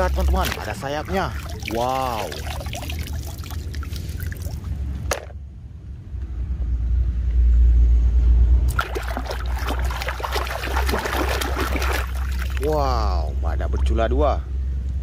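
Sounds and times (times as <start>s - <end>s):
water splashing and sloshing: 0.0s - 5.4s, 8.7s - 14.2s.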